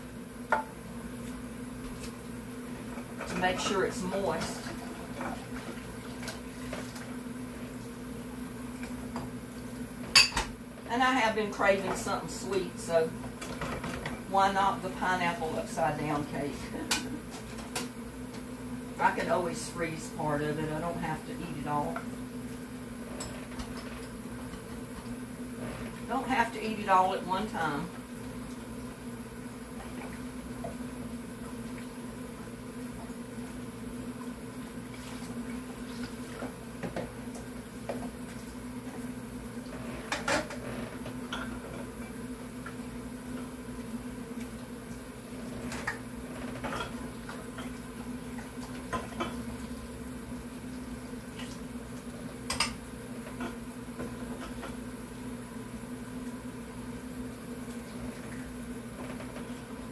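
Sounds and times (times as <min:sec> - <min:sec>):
dishes clinking and knocking: 0:10.1 - 0:10.5.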